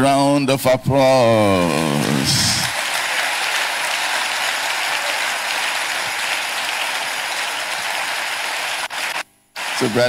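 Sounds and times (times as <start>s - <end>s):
audience applause: 2.0s - 10.0s.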